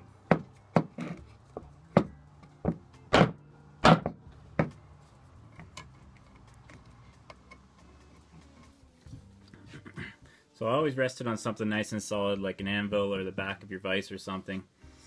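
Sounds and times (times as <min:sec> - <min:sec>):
hammer tapping wooden block: 0:00.3 - 0:01.0.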